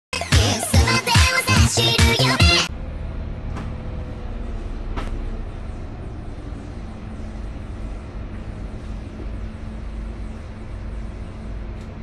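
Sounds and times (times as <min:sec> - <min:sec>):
bus diesel engine droning: 0:00.9 - 0:12.0
road and cabin noise: 0:02.4 - 0:12.0.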